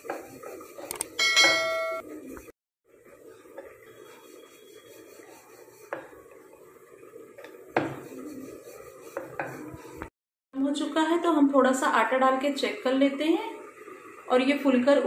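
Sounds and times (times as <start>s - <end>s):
rolling pin knocking on board: 7.8s - 8.0s.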